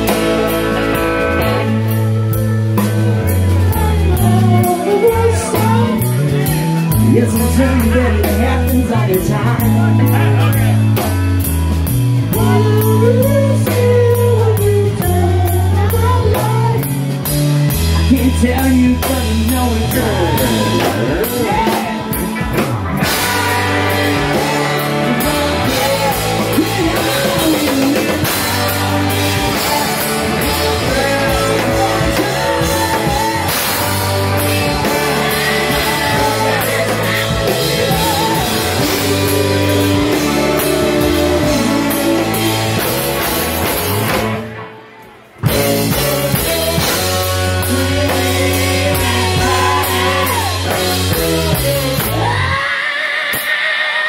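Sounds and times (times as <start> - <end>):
person singing: 0.0 - 11.2, 12.2 - 44.2, 45.4 - 54.0
rock band playing: 0.0 - 54.0.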